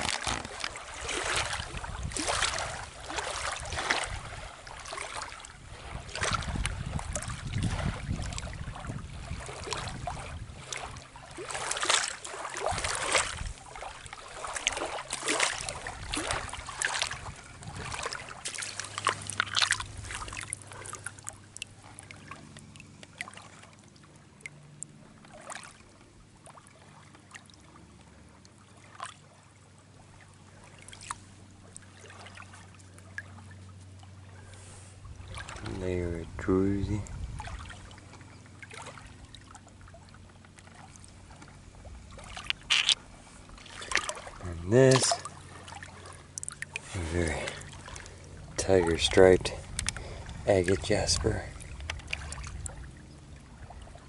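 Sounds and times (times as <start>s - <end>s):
hands splashing in shallow water: 0.0s - 23.8s, 42.1s - 48.2s
water trickling and dripping: 0.0s - 54.0s.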